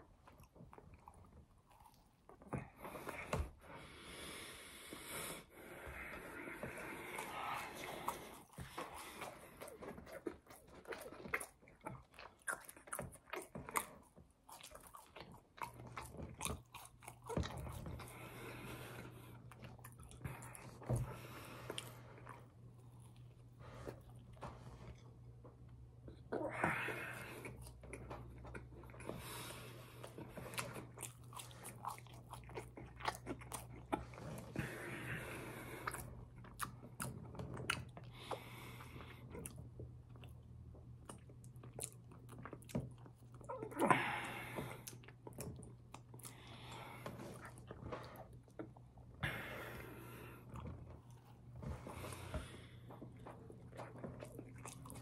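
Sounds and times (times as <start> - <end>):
chewing and biting food: 0.0 - 3.5, 6.5 - 25.7, 27.2 - 55.0.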